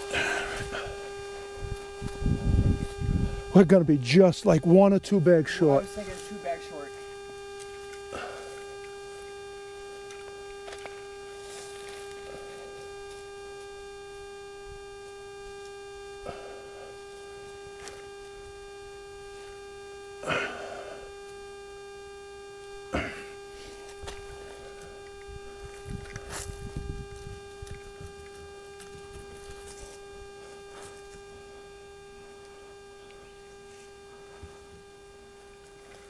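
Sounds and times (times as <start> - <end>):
steady hum with overtones: 0.0 - 36.0
rustling scrapes: 11.3 - 12.6.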